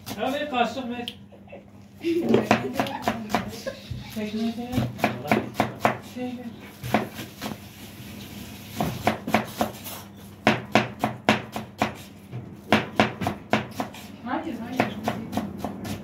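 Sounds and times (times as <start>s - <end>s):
knife chopping on wooden board: 2.3s - 6.1s, 6.8s - 7.6s, 8.7s - 16.0s.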